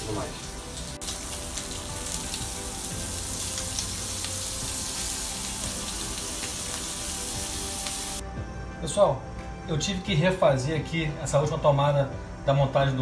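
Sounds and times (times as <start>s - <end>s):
shrimp sizzling in a pan: 0.0s - 8.2s.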